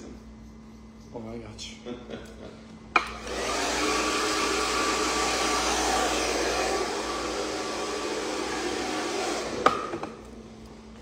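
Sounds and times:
hair dryer blowing: 0:03.0 - 0:10.3.

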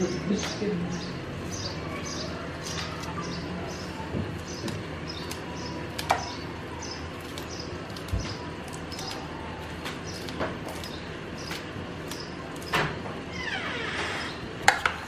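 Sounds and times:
bird chirping: 0:00.0 - 0:09.3, 0:10.0 - 0:12.7.

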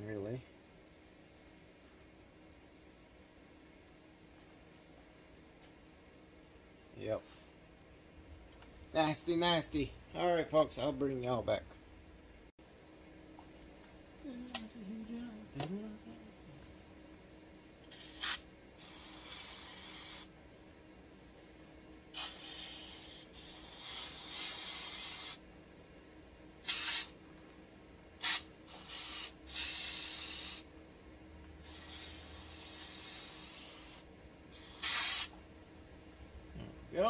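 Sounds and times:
aerosol spray hissing: 0:17.9 - 0:20.3, 0:22.2 - 0:25.4, 0:26.6 - 0:27.2, 0:28.2 - 0:30.7, 0:31.6 - 0:35.4.

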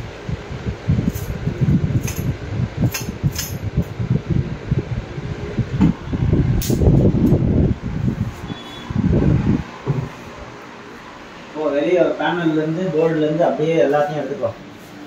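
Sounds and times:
phone microphone handling rumble: 0:00.9 - 0:10.2.

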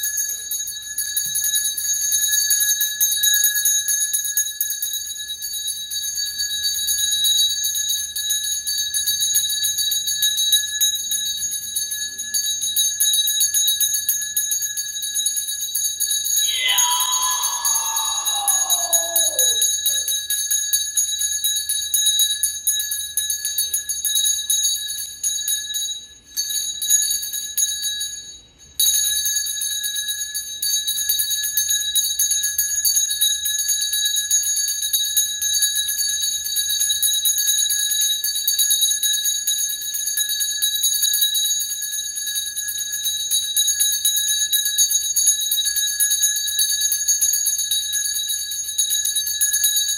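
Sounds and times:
hand bell ringing: 0:00.0 - 0:32.1
long tone falling in pitch: 0:16.5 - 0:19.7.

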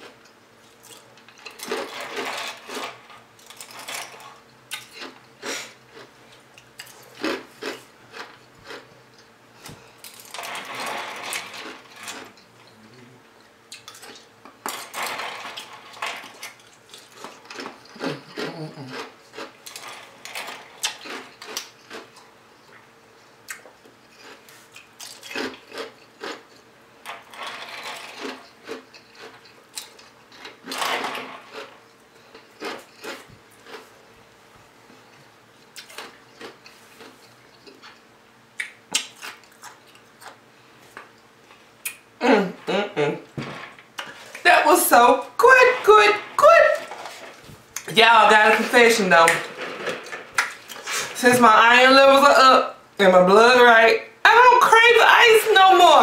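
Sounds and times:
ice being crunched and chewed: 0:06.8 - 0:09.3, 0:16.4 - 0:22.3, 0:23.5 - 0:26.6, 0:27.9 - 0:30.8, 0:31.4 - 0:33.9.

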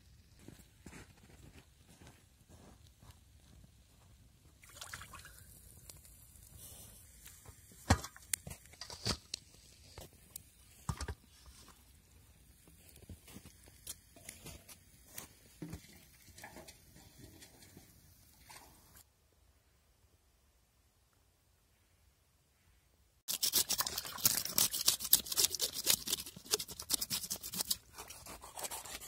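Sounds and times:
fish sloshing in bowl: 0:23.3 - 0:25.0.

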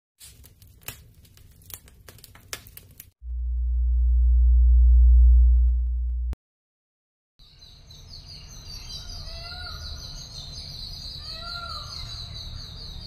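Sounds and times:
crackles and clicks: 0:00.2 - 0:06.4
deep bass drone: 0:03.2 - 0:06.4
faint low rumble: 0:03.2 - 0:06.4.

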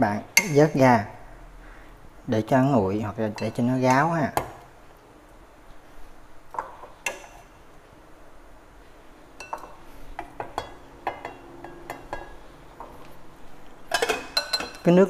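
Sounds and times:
chopsticks clinking on a pot: 0:03.2 - 0:04.1, 0:09.4 - 0:13.1, 0:13.9 - 0:15.0.

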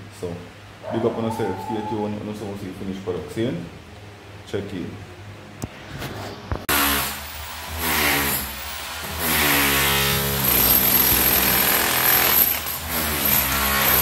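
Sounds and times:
electric demolition hammer chipping tile: 0:06.7 - 0:14.0.

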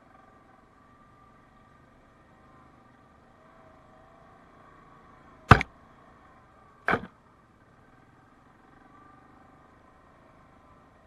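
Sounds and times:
atv engine hum: 0:00.0 - 0:11.0
sharp knocks: 0:06.9 - 0:07.1.

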